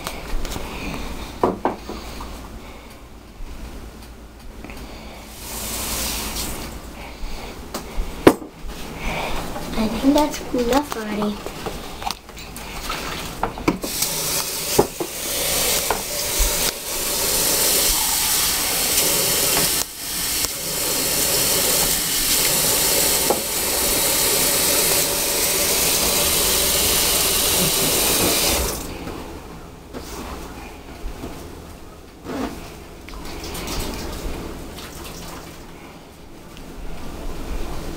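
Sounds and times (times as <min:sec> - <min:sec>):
tap running water into a cup: 0:13.7 - 0:28.9.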